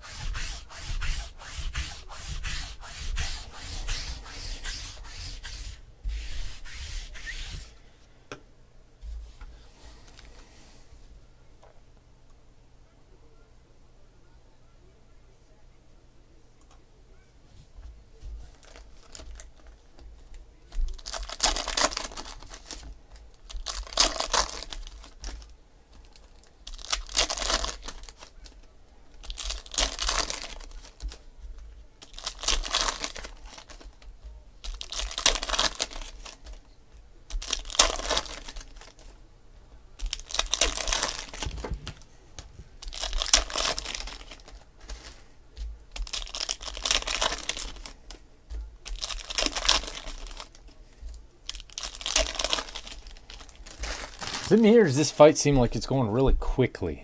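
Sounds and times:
foil packs crinkling: 20.9s - 28.6s, 29.2s - 31.2s, 32.0s - 36.6s, 37.3s - 39.2s, 40.0s - 42.0s, 42.8s - 45.3s, 45.9s - 48.2s, 48.8s - 50.7s, 51.4s - 54.8s.

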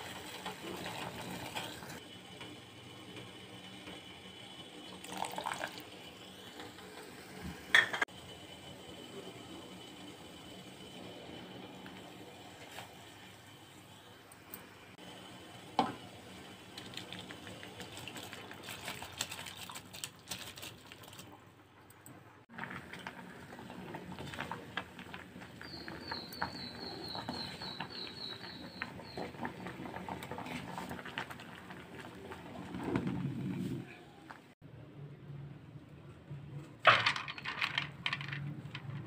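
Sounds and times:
water swirling in a steel pot: 0.0s - 2.1s, 15.7s - 21.2s, 22.5s - 33.8s
rice boiling and bubbling: 0.0s - 34.6s, 36.8s - 39.0s.

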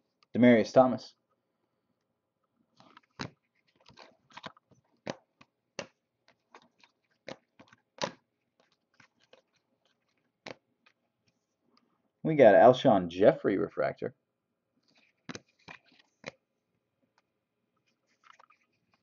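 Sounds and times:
trading cards flipped by hand: 2.7s - 11.5s, 14.8s - 16.4s, 17.1s - 19.0s.

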